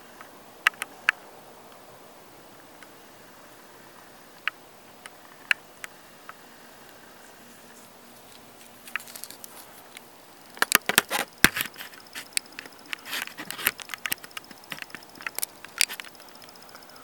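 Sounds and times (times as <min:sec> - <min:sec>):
faint steady high whine: 0:00.0 - 0:17.0
irregular clicks taps and rustling: 0:07.2 - 0:16.9.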